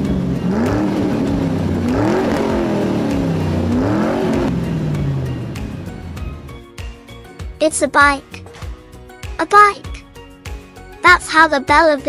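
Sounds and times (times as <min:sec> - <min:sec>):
car engine revving: 0:00.0 - 0:06.8.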